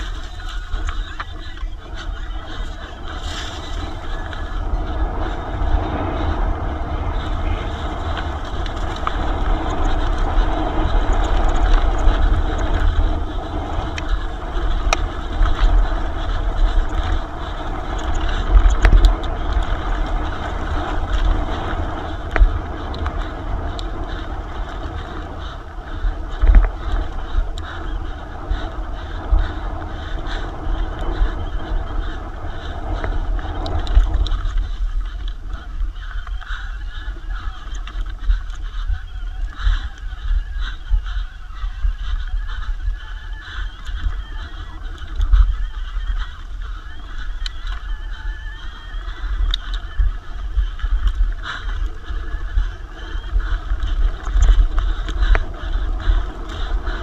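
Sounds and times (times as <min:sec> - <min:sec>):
tyres rolling over dirt: 0:00.0 - 0:36.0
bike rattling: 0:00.0 - 0:57.0
wind buffeting microphone: 0:00.0 - 0:57.0.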